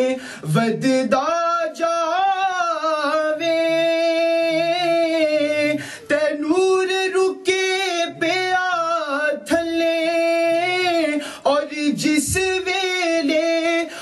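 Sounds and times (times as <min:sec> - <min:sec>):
man singing into microphone: 0:00.0 - 0:14.0
short breaths: 0:00.2 - 0:00.4, 0:05.8 - 0:06.1, 0:11.2 - 0:11.5.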